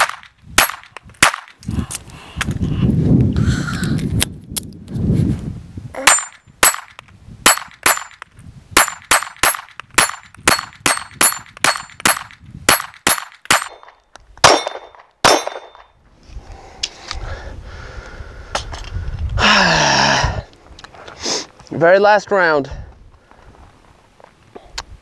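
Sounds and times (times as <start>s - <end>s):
pistol shots: 0.0s - 1.5s, 8.8s - 15.9s.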